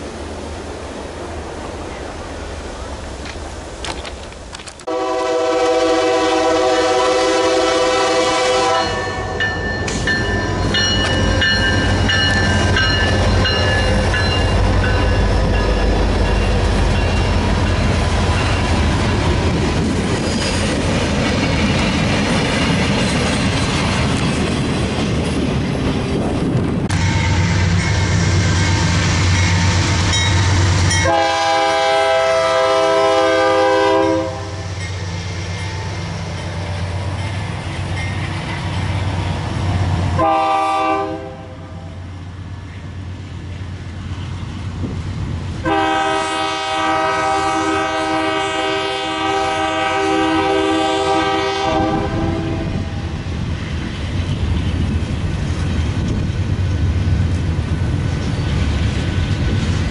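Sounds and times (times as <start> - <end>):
train wheels rolling on rails: 0.0 - 41.2, 41.9 - 59.9
locomotive horn blowing: 4.9 - 9.6, 26.9 - 34.8, 40.2 - 41.9, 45.6 - 53.0.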